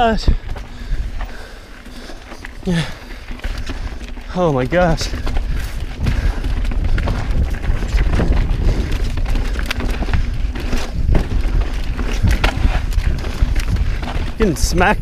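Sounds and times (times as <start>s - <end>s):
bike knocking and rattling on rocks: 0.0s - 15.0s
bike tyres on dirt: 0.0s - 15.0s
wind buffeting microphone: 0.0s - 15.0s.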